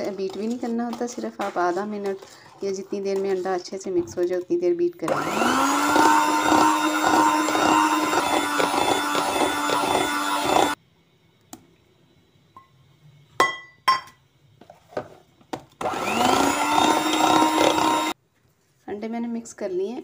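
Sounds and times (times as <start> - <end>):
electric hand mixer beating: 5.1 - 10.8, 15.8 - 18.2.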